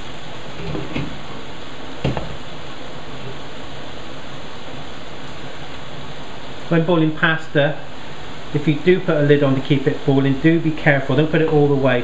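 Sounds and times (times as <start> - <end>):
food boiling and frying hiss: 0.0 - 12.0
faint knock: 2.0 - 2.4.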